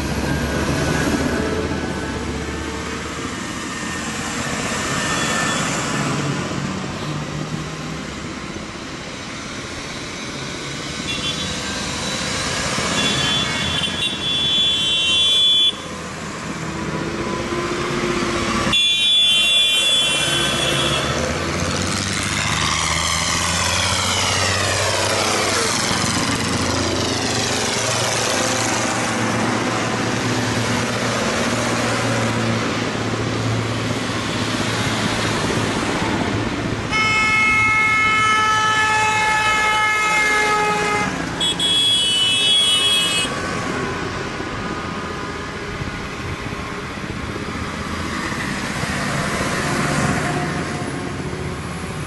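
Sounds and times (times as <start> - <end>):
tractor diesel engines: 0.0 - 52.0
tractor passing close: 20.3 - 36.5.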